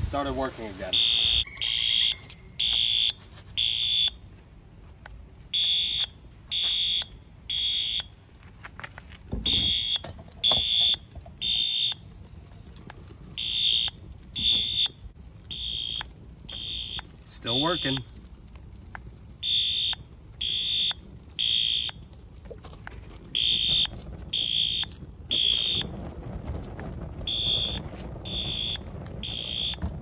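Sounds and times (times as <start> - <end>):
fire alarm horn blasts: 0.9 - 4.2, 5.5 - 8.2, 9.4 - 12.1, 13.4 - 18.1, 19.4 - 22.0, 23.4 - 26.0, 27.2 - 30.0.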